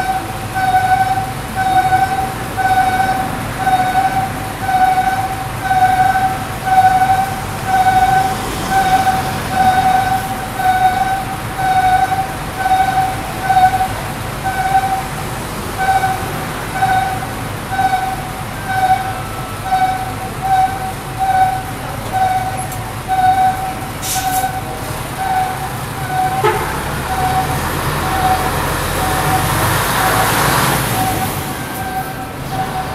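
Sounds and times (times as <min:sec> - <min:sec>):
pulsing squeal from bus: 0:00.0 - 0:32.9
traffic noise: 0:00.0 - 0:32.9.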